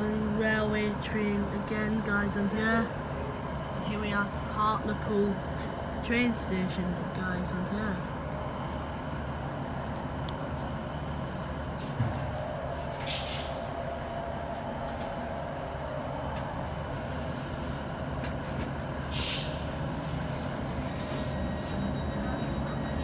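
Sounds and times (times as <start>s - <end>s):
diesel engine idling: 0.0s - 23.0s
compressed air hissing: 19.1s - 19.7s.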